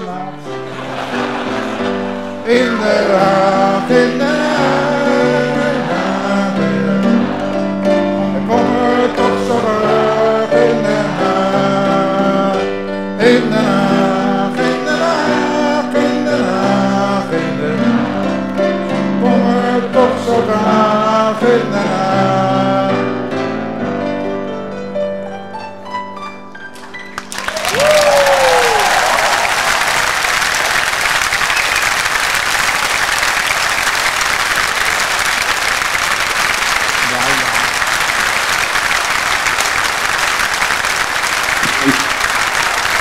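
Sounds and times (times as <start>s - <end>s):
voices singing: 0.0s - 23.3s
grand piano playing: 0.0s - 43.0s.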